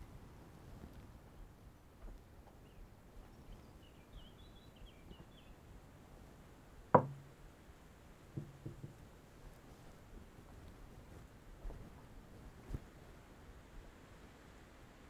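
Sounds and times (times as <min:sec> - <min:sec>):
cup knocking on wooden table: 0:07.0 - 0:07.3, 0:08.4 - 0:09.0.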